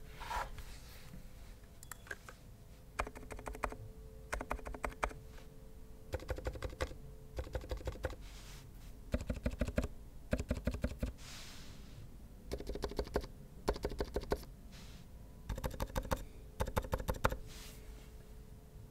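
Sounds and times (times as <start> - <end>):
mechanical keyboard typing: 3.0 - 5.2, 6.1 - 8.2, 9.1 - 11.1, 12.5 - 14.5, 15.5 - 17.4.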